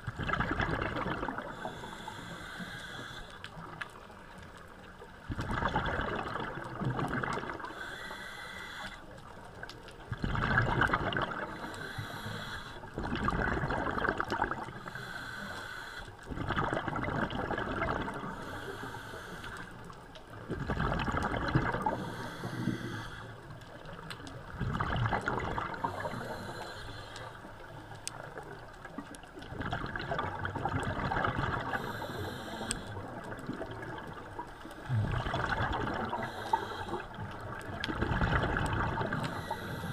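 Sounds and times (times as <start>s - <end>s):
bubbling rush of exhaled air: 0.0s - 3.1s, 5.3s - 7.9s, 10.1s - 12.2s, 13.0s - 14.8s, 16.3s - 18.6s, 20.5s - 23.2s, 24.5s - 26.6s, 29.4s - 39.9s
regulator hiss: 1.6s - 3.4s, 7.7s - 9.0s, 11.5s - 12.8s, 14.8s - 16.1s, 31.8s - 33.0s, 36.1s - 37.1s.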